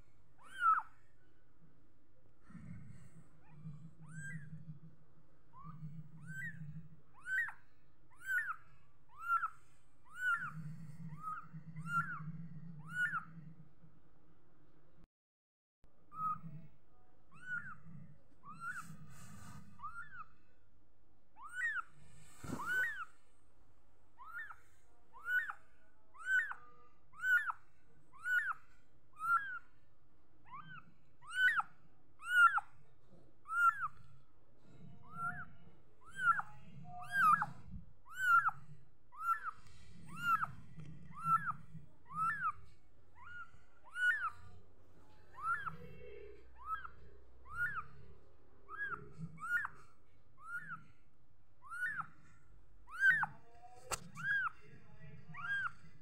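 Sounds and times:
kitten mewing: 0:52.9 - 0:54.7.

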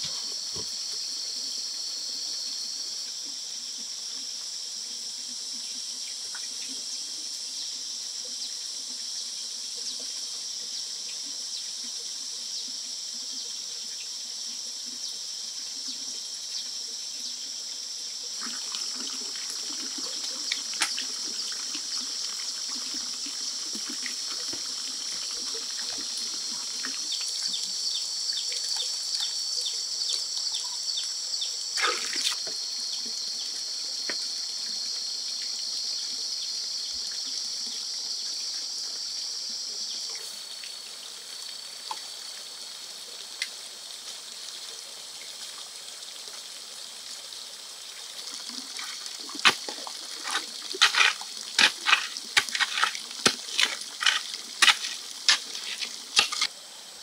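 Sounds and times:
insects buzzing: 0:00.0 - 0:57.0
water trickling: 0:18.2 - 0:29.5, 0:40.5 - 0:56.5.

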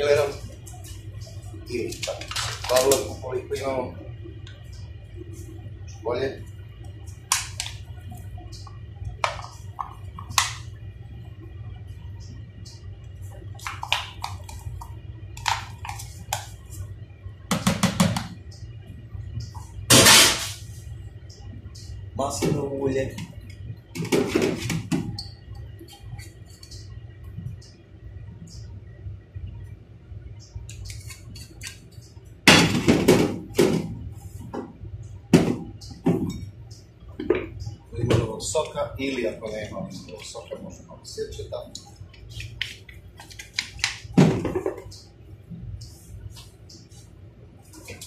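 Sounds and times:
kitchen containers knocking and clattering: 0:17.5 - 0:18.3, 0:24.0 - 0:25.1.

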